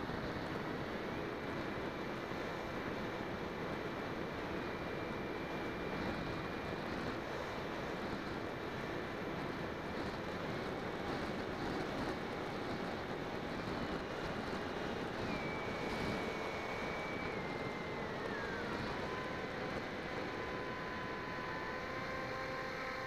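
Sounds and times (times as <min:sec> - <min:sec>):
electric motor and propeller whining: 0:00.0 - 0:23.0
wind rush on microphone: 0:05.2 - 0:21.1.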